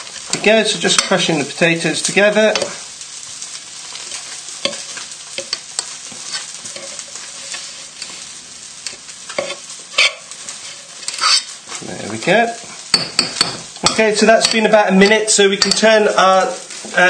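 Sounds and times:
fish sizzling in pan: 0.0s - 17.0s
fork scraping potatoes in saucepan: 4.1s - 8.2s, 8.9s - 11.6s.

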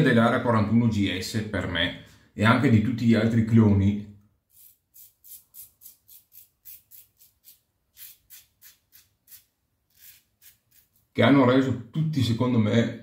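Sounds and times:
razor scraping beard stubble: 4.5s - 11.1s.

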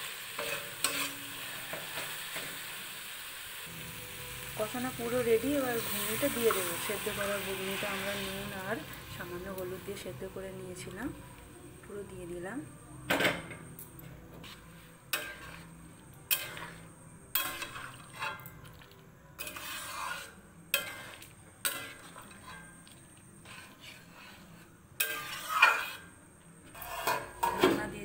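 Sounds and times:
metal spatula scraping pan: 0.2s - 2.5s, 4.4s - 10.1s, 14.3s - 27.8s.

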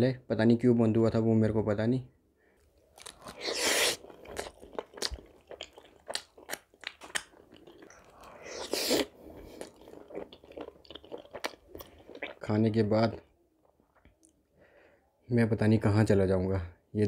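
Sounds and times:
loud crunching bites: 2.9s - 11.6s
chewing and mouth clicks: 3.0s - 12.4s.

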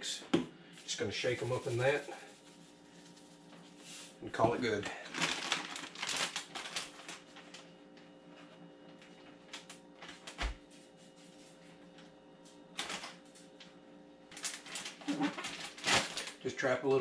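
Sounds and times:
faint steady hum: 0.0s - 17.0s
plastic bag crinkling: 4.8s - 7.7s, 12.8s - 13.3s, 14.3s - 16.4s.

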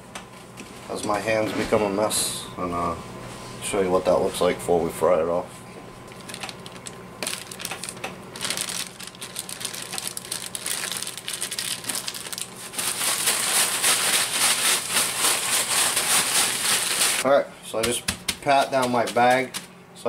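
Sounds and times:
plastic bag crinkling: 6.1s - 17.2s
breadcrumbs rattling in shaken bag: 6.2s - 17.2s, 18.3s - 19.7s.

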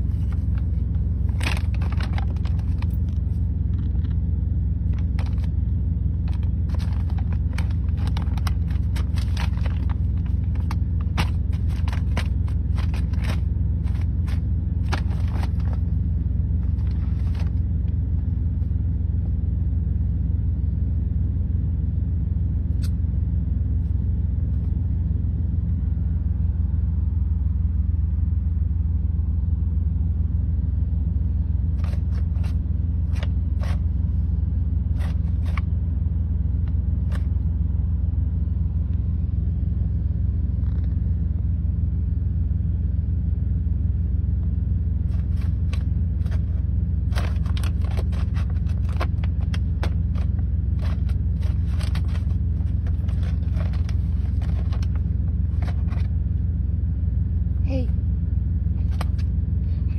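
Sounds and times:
paper bag crinkling: 0.0s - 4.1s, 4.8s - 5.6s, 6.2s - 16.0s, 16.6s - 17.6s, 31.8s - 33.8s, 34.9s - 35.6s, 45.1s - 56.1s
diesel engine idling: 0.0s - 59.9s.

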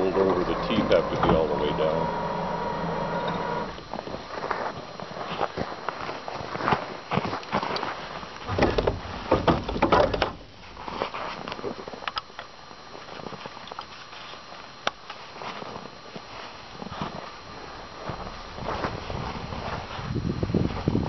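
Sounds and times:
boots crunching on packed snow: 3.4s - 8.3s, 15.3s - 20.1s
metal frame knocking and rattling: 8.5s - 10.5s.

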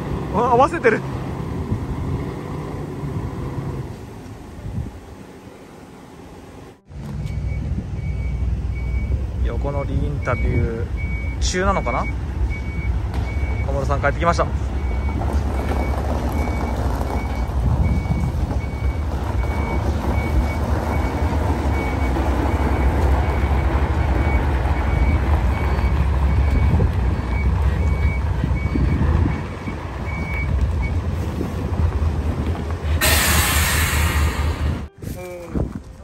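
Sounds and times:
diesel engine rumbling: 0.0s - 36.0s
back-up alarm beeping: 10.2s - 13.9s, 14.8s - 31.0s.

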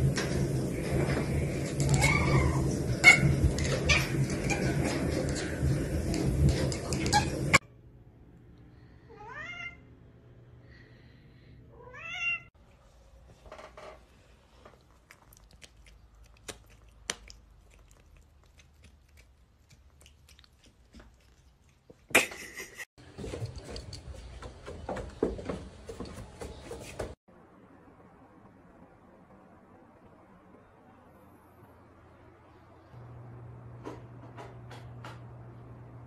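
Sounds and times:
cat meowing: 9.1s - 9.8s, 11.8s - 12.5s.

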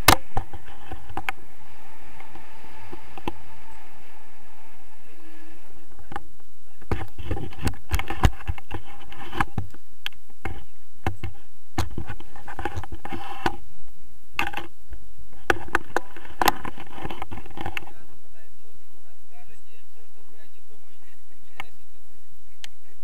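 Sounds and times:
wind buffeting microphone: 0.0s - 23.0s
knocks and scraping from camera mount: 6.8s - 13.6s, 14.4s - 14.7s, 15.4s - 17.9s.

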